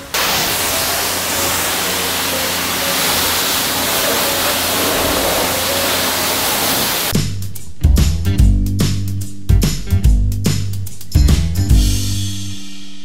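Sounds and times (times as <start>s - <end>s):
pressure washer spraying water: 0.0s - 7.2s
pump motor humming: 0.0s - 7.2s.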